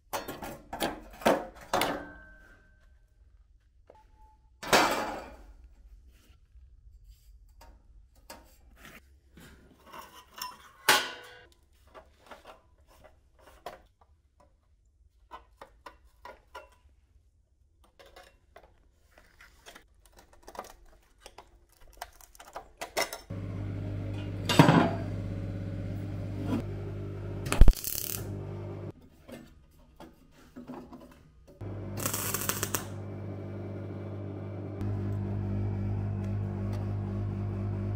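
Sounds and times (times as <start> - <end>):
machine humming: 23.3 - 28.9, 31.6 - 37.9.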